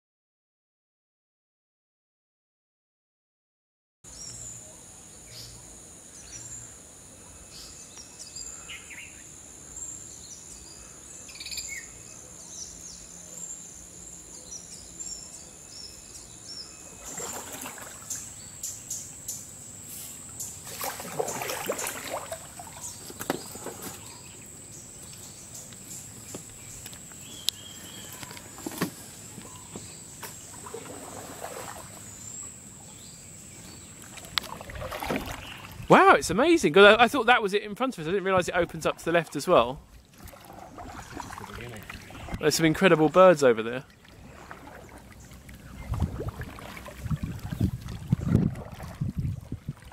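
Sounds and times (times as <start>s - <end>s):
insects whining: 4.1s - 47.7s
birds chirping: 4.1s - 47.8s
paddle splashing in water: 16.9s - 18.4s, 20.6s - 24.3s, 28.2s - 32.2s, 34.0s - 36.1s, 38.5s - 49.9s.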